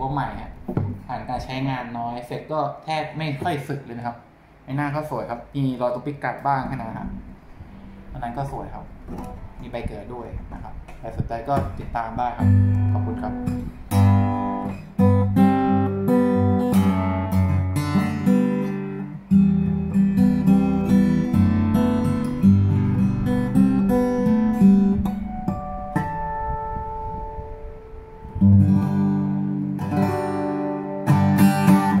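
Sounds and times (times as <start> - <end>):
acoustic guitar fingerstyle: 0.5 - 1.5, 6.6 - 32.0.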